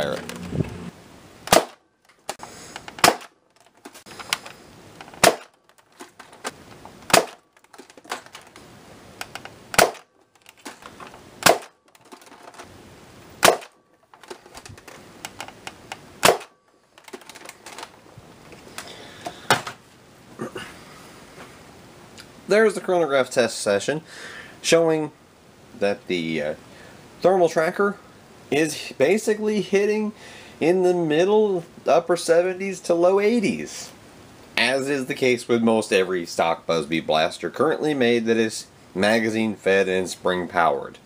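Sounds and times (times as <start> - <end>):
dart blaster firing: 1.5 - 1.8, 3.0 - 3.3, 5.2 - 5.5, 7.1 - 7.4, 9.7 - 10.1, 11.4 - 11.8, 13.4 - 13.8, 16.2 - 16.5.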